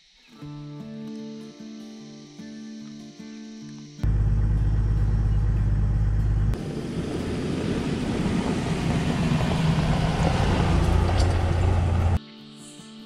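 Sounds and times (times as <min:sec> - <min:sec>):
diesel vehicle driving past: 0:04.0 - 0:12.2
low engine drone: 0:04.0 - 0:12.2
tyres crunching over gravel: 0:06.6 - 0:12.2.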